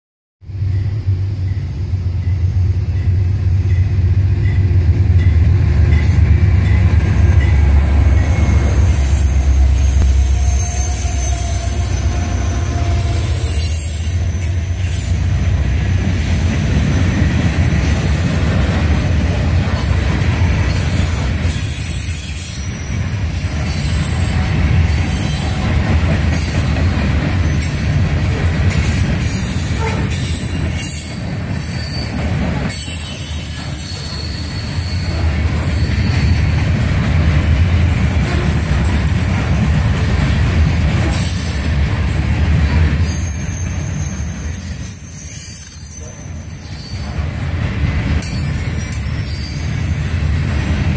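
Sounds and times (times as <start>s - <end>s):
diesel locomotive drone: 0.4s - 50.9s
train wheels clattering on rail: 1.2s - 43.2s, 46.7s - 50.9s
faint wheel squeal: 8.2s - 15.3s.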